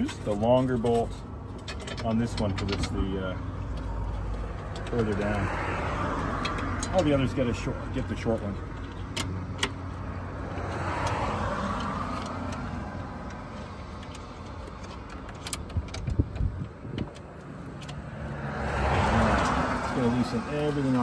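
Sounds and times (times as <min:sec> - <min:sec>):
car passing: 0:03.9 - 0:08.0, 0:09.4 - 0:14.8, 0:17.6 - 0:21.0.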